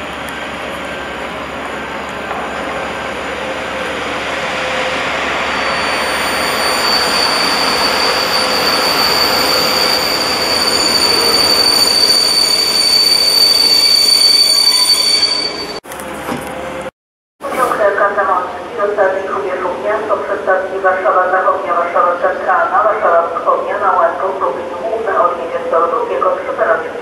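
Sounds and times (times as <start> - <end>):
train rolling noise: 0.0 - 19.0
high-pitched brake squeal: 4.2 - 15.8.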